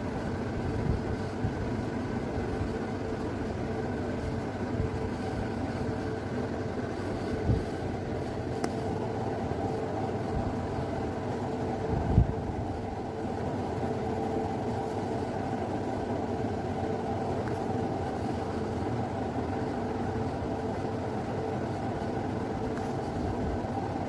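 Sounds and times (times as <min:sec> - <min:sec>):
faint hum: 0:00.0 - 0:24.0.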